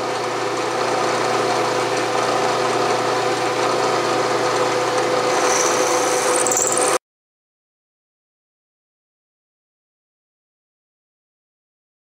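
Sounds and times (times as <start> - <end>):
milling machine hum: 0.0 - 7.0
thin high squeal: 5.3 - 7.0.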